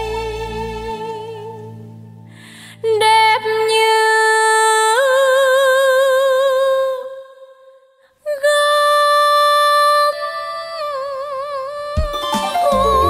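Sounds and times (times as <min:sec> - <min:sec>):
held melodic notes with vibrato: 0:12.1 - 0:13.0.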